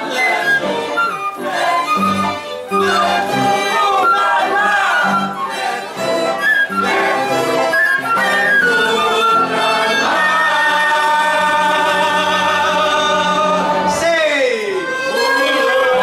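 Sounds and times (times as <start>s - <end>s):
flute playing a tune: 0.0s - 12.6s
violins: 0.0s - 16.0s.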